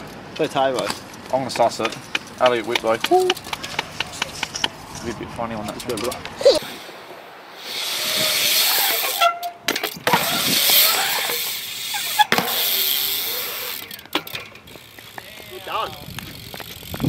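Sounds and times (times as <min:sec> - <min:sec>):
bike clacking against concrete: 0:00.0 - 0:06.6, 0:08.3 - 0:17.0
bike tyres rolling on concrete: 0:00.0 - 0:17.0.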